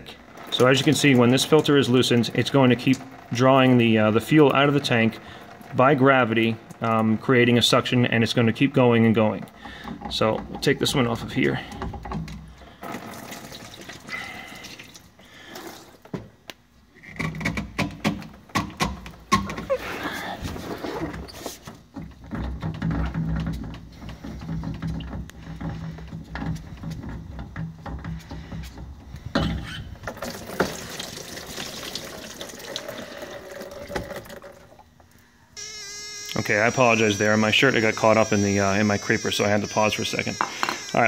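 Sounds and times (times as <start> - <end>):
fuel trickling and dripping: 9.3 - 16.1, 29.9 - 35.5
handling clicks and knocks: 40.3 - 41.0.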